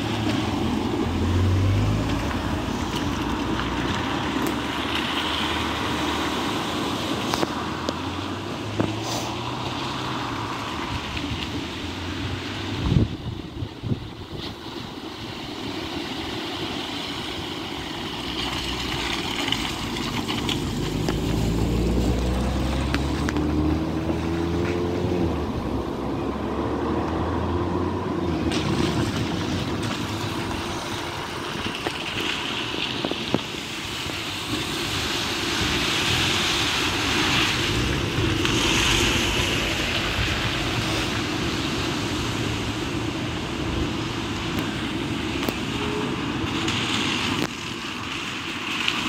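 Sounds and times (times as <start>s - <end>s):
car engine revving: 0.0s - 11.1s, 18.0s - 32.4s
water splashing around tyres: 0.0s - 49.0s.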